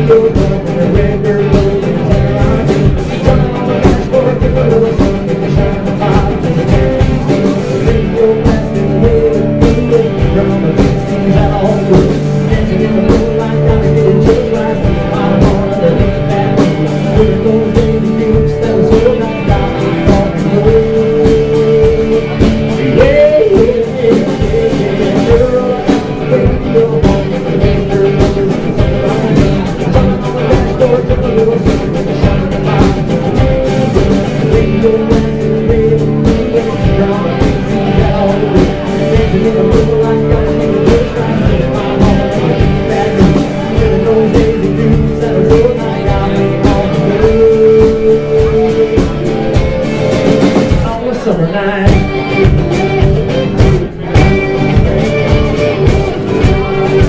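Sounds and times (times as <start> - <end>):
acoustic guitar: 0.0 - 57.0
drums keeping a beat: 0.0 - 57.0
electric guitar: 0.0 - 57.0.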